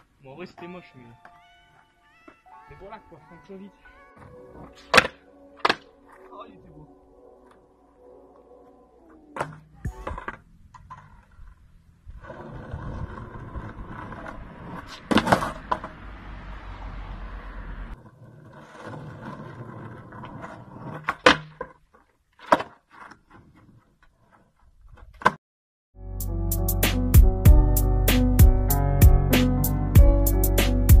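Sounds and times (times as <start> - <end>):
skateboard wheels rolling on asphalt: 4.0 - 25.4
skateboard deck slapping ground: 4.2 - 6.3, 9.2 - 16.0, 17.9 - 25.4.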